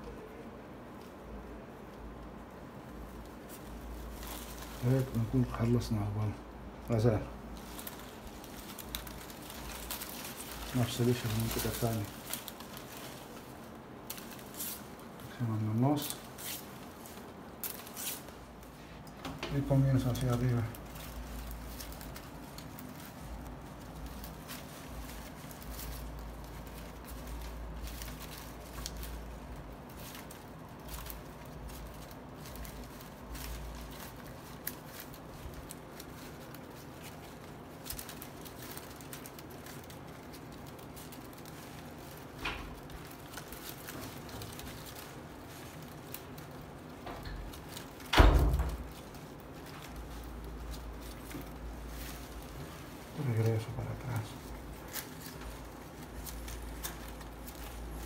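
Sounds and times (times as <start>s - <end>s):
palm leaves rustling and crackling: 0.0s - 58.0s.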